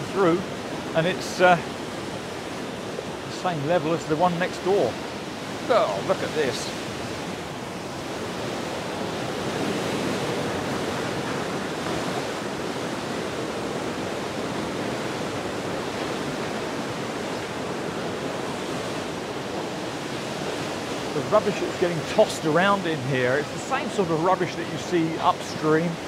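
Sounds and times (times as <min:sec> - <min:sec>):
floodwater pouring through sluice gates: 0:03.3 - 0:06.7, 0:20.2 - 0:26.0.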